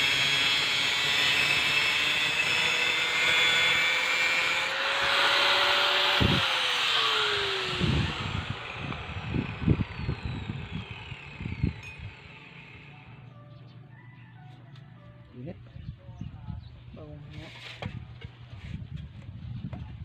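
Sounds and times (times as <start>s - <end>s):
angle grinder cutting: 0.0s - 13.3s.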